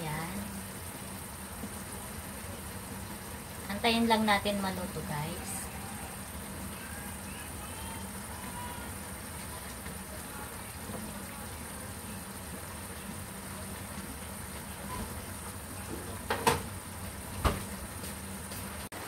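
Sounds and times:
sauce bubbling in a pan: 0.0 - 19.0.

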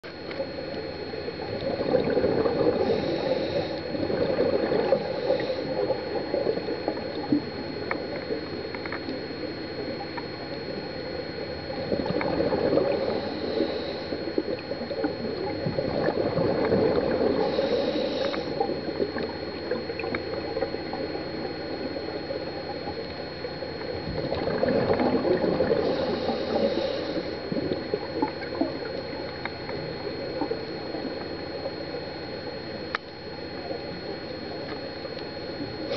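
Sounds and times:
thin high whine: 0.0 - 35.9
diver's exhaled bubbles: 1.4 - 8.6, 11.6 - 22.0, 23.8 - 31.7
short hissing breaths: 2.8 - 3.8, 13.0 - 14.2, 17.4 - 18.6, 25.8 - 27.4
small clicks: 7.8 - 9.2.

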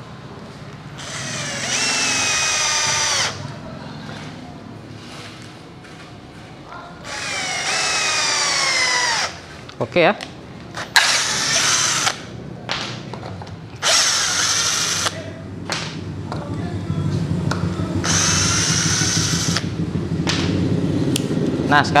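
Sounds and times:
cordless drill driving screws: 1.0 - 3.5, 7.0 - 9.4, 11.0 - 12.3, 13.8 - 15.2, 18.0 - 19.6.

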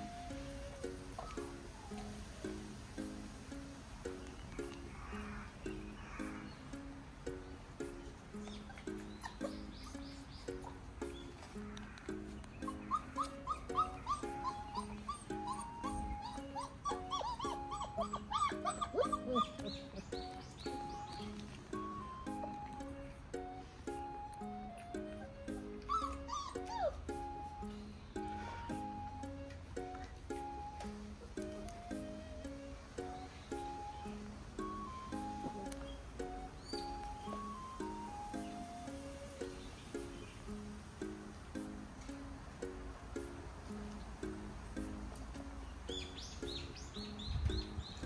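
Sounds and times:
puppies whimpering and squealing: 0.0 - 3.3, 8.2 - 40.1
music with plucked beat: 0.0 - 48.0.

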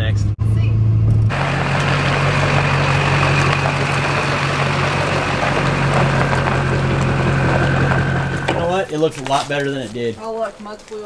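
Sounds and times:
diesel pickup idling: 1.3 - 9.1.

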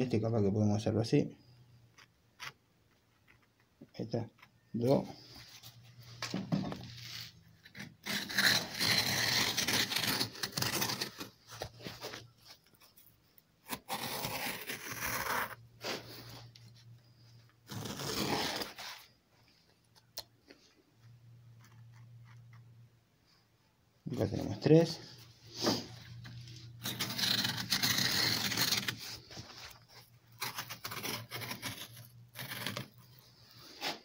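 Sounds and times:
blade cutting through leather: 7.1 - 11.7, 13.6 - 15.6, 17.7 - 19.0, 26.8 - 29.4, 30.3 - 33.2.

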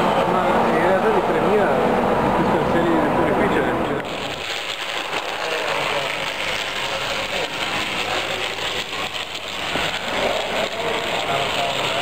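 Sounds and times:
busy hall background noise: 0.0 - 12.0
model tram running on track: 4.0 - 12.0.

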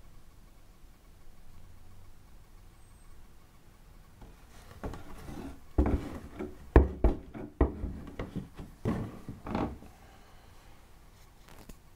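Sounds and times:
cardboard box knocks and thumps: 4.2 - 9.8
cardboard rustling and sliding: 4.2 - 9.8.

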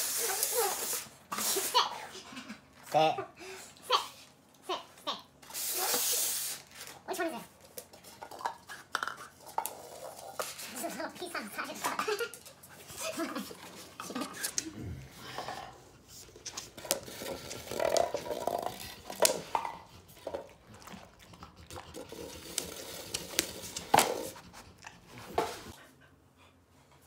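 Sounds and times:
dog sniffing: 15.6 - 25.8.

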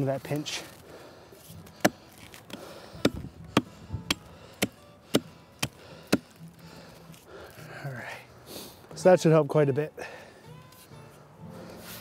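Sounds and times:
axe chopping wet log: 1.7 - 6.3.

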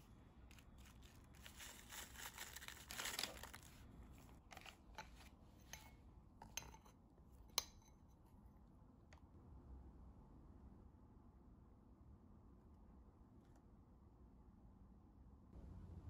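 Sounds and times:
powder rustling into bowl: 0.0 - 5.8
metal spoon stirring: 0.5 - 6.9.

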